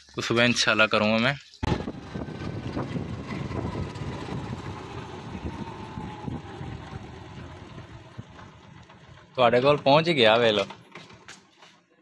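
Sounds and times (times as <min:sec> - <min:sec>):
motorcycle engine at low speed: 0:01.6 - 0:12.0
road and wind noise: 0:01.6 - 0:12.0.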